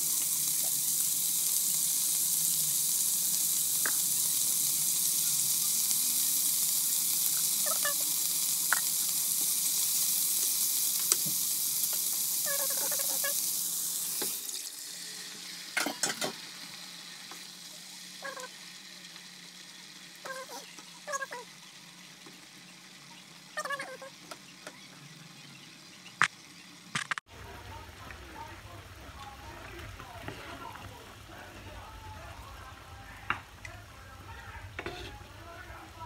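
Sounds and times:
vegetables sizzling in a frying pan: 0.0s - 36.0s
wooden spatula stirring: 34.8s - 35.2s.

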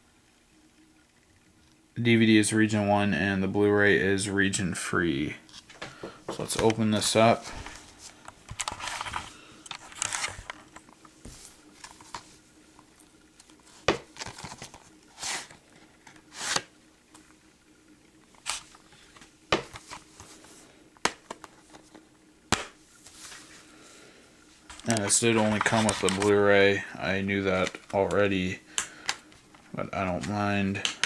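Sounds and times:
plastic case rustling and scraping: 5.5s - 12.4s, 13.7s - 16.7s, 18.4s - 22.0s, 24.7s - 26.4s.

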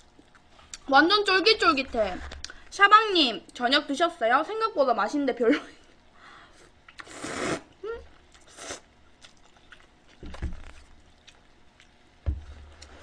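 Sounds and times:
noodles slurped: 6.9s - 7.8s, 8.4s - 11.5s
chewing with wet clicks: 9.1s - 12.2s.

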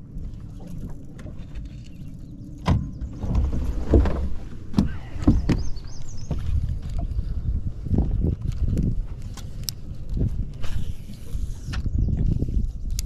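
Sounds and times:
wind rumble on microphone: 0.0s - 13.0s
knocks and thumps on boat deck: 2.6s - 7.1s.

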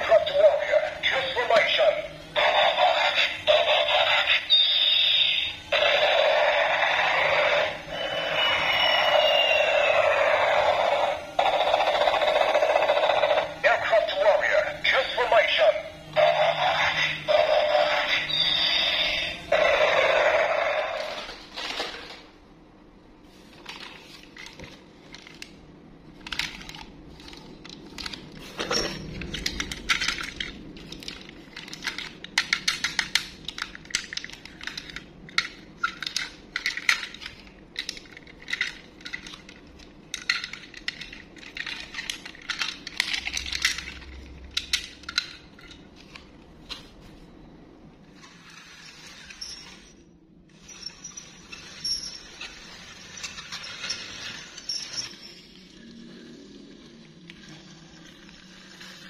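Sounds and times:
plastic toys clattering: 21.0s - 22.3s, 23.4s - 46.9s, 50.5s - 59.0s.

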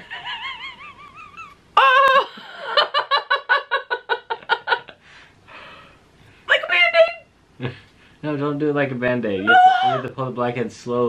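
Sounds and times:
woman crying out: 1.8s - 2.3s, 9.4s - 10.1s.

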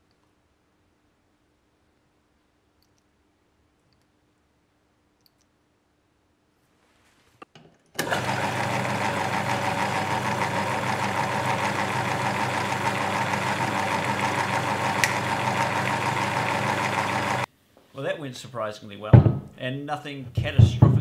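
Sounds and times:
faint clicks: 5.2s - 5.5s
lathe running with steady hum: 8.0s - 17.5s.

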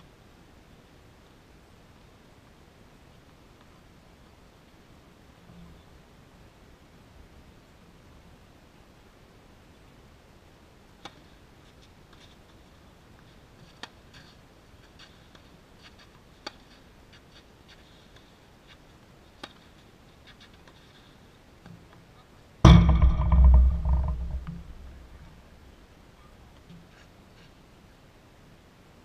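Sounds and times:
loud thump near microphone: 22.7s - 25.4s
rumble: 22.7s - 25.9s.

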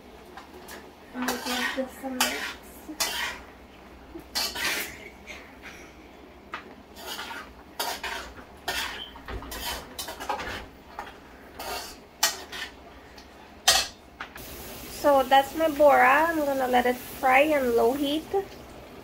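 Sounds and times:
spoon scraping cooking pot: 1.3s - 3.5s, 4.3s - 5.0s, 6.9s - 10.4s, 11.0s - 12.8s.

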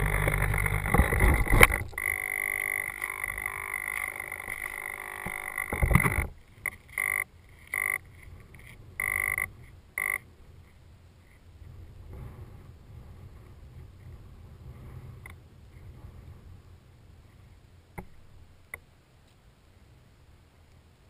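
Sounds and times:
steady high electronic tone: 0.0s - 6.3s, 6.9s - 8.1s, 9.0s - 10.2s
short beeps: 9.0s - 10.2s.

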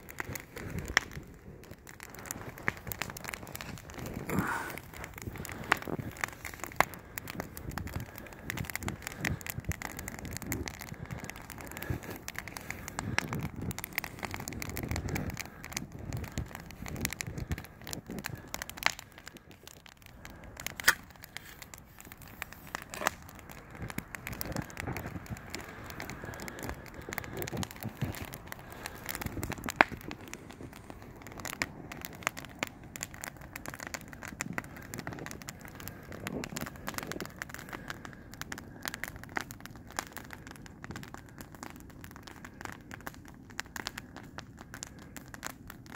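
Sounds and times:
wood fire crackling and popping: 0.0s - 45.9s.

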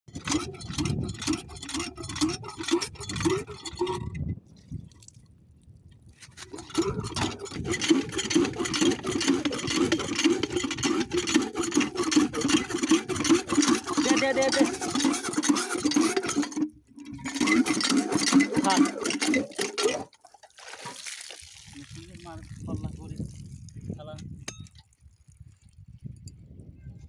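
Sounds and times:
hand pump clanking: 0.1s - 4.2s, 6.2s - 21.0s
water sloshing: 0.1s - 25.7s.

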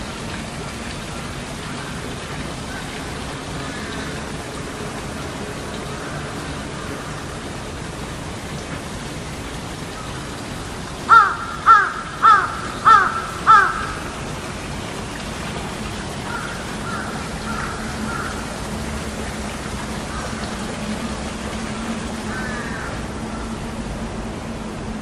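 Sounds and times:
crow cawing: 3.6s - 4.2s, 11.1s - 14.1s, 16.2s - 18.5s, 22.3s - 23.5s.

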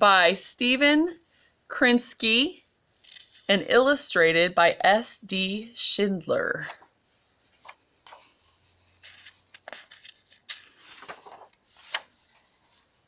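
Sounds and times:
book pages turning: 3.0s - 3.5s, 7.5s - 13.0s.

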